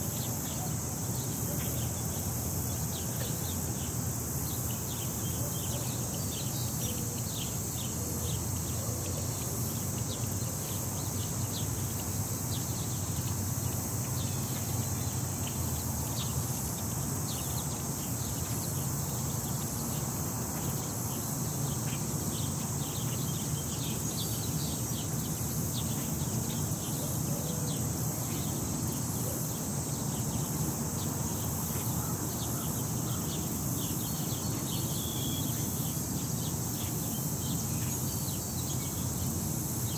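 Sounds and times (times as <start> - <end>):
high-pitched hiss: 0.0 - 39.9.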